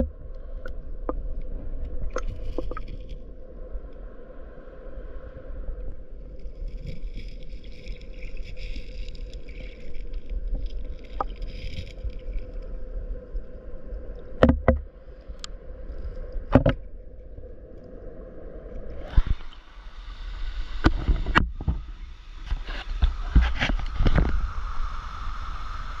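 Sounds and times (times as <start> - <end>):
muffled underwater stream rumble: 0.0 - 26.0.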